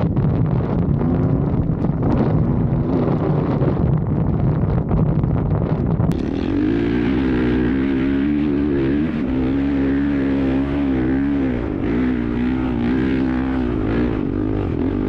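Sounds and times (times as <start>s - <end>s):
wind rumbling on microphone: 0.0s - 15.0s
vehicle engine droning: 6.1s - 15.0s.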